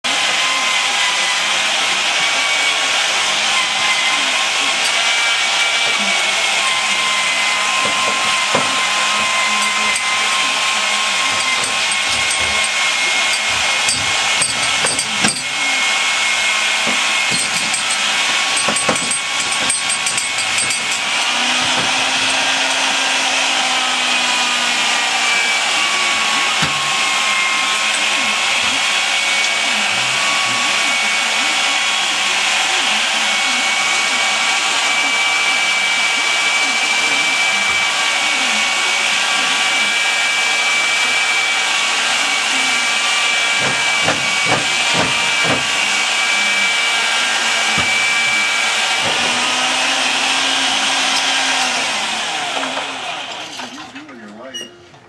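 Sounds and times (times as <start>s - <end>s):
wood lathe whining: 0.0s - 54.4s
tool scraping wood: 4.7s - 30.6s, 43.2s - 52.0s.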